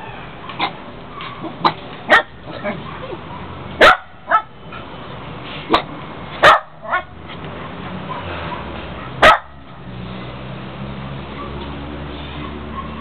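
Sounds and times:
dog barking: 0.4 - 4.5, 5.7 - 9.6, 11.3 - 11.7, 12.4 - 13.0.

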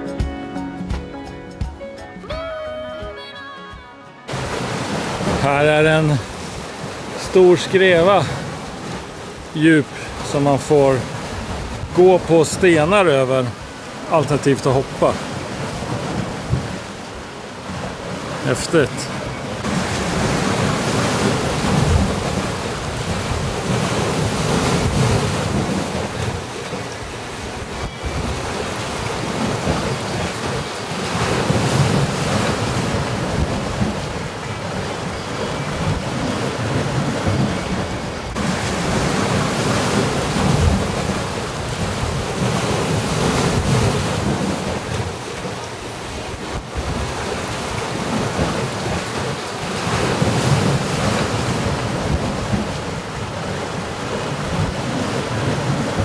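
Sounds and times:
sea surf on rocky shore: 2.2 - 56.0
wind buffeting microphone: 19.2 - 56.0.

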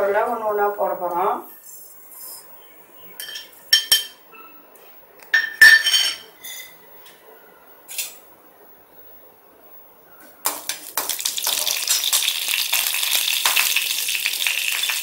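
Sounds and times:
metal spoon clinking on metal pan: 3.2 - 4.2, 5.4 - 6.8.

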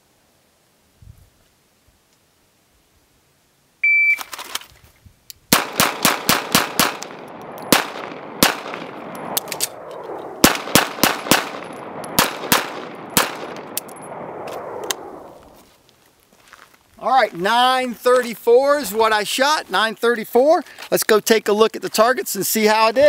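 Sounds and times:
shot timer beep: 3.8 - 4.3
gun reload clicks: 4.2 - 4.7
pistol shots: 5.5 - 14.8.

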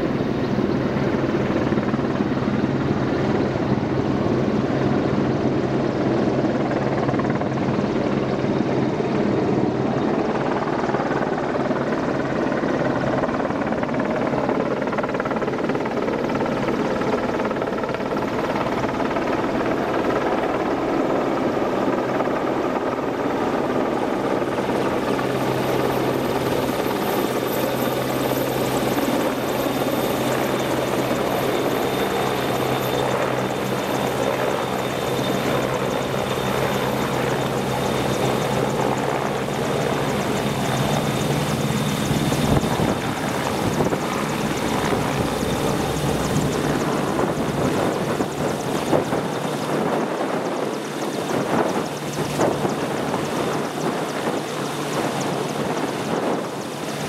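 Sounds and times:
helicopter rotor drone: 0.0 - 57.0
high turbine whine: 14.6 - 57.0.

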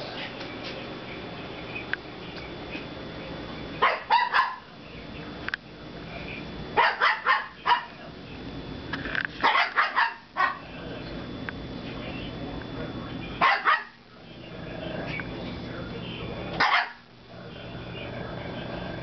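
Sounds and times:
small dogs barking: 3.7 - 4.8, 6.3 - 8.3, 9.4 - 11.1, 13.3 - 15.4, 16.1 - 19.0.

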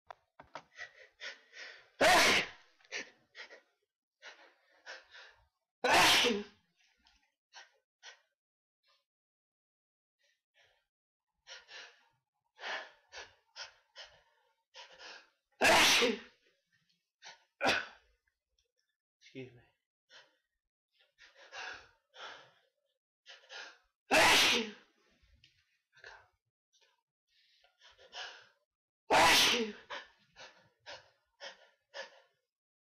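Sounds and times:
person sneezing loudly: 2.0 - 2.6, 5.8 - 6.5, 15.6 - 16.3, 17.6 - 18.0, 24.1 - 24.8, 29.1 - 29.8.

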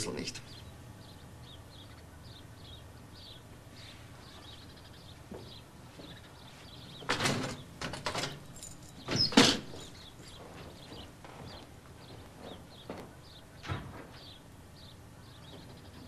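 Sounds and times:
faint birdsong: 0.0 - 16.0.

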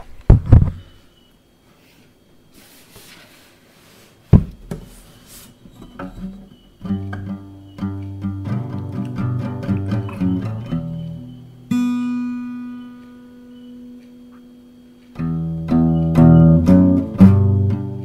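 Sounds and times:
loud knocks: 4.3 - 4.9
acoustic guitar strumming: 5.8 - 18.0.

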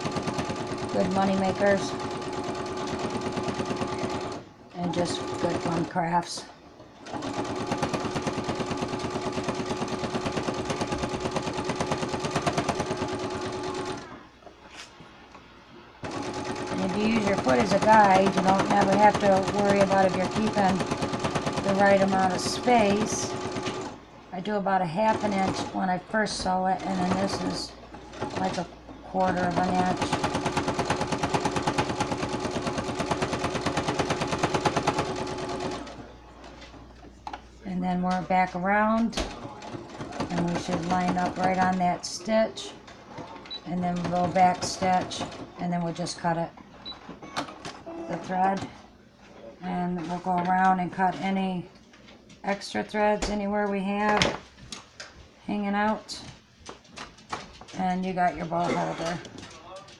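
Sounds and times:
sewing machine stitching: 0.0 - 6.0, 7.0 - 14.1, 16.0 - 24.0, 25.0 - 36.1.

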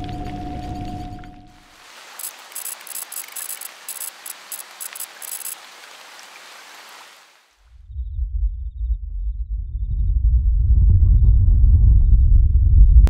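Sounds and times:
steady hiss like rain: 1.6 - 7.7
quick crackles: 1.8 - 7.2
deep rumble: 7.8 - 13.0.

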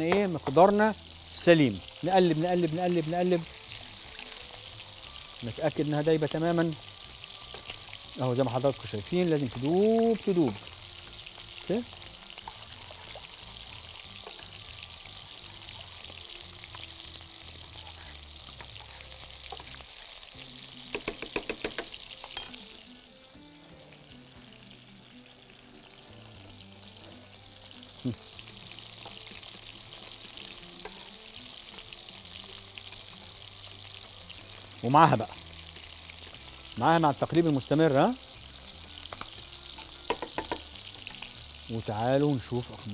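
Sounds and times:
chicken skin sizzling in pan: 0.0 - 42.9
metal spoon clinking saucepan: 21.0 - 22.7.

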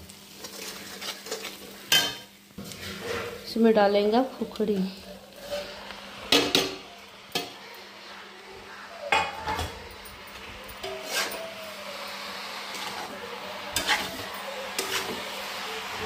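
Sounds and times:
ladle scraping metal pan: 0.4 - 3.6, 10.8 - 11.4, 13.7 - 15.4.

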